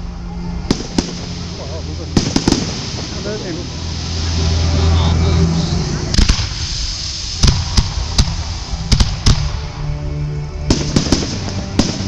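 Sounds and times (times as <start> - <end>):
music: 0.0 - 12.0
fireworks bursting with bangs: 0.6 - 4.4, 6.0 - 9.8, 10.7 - 12.0.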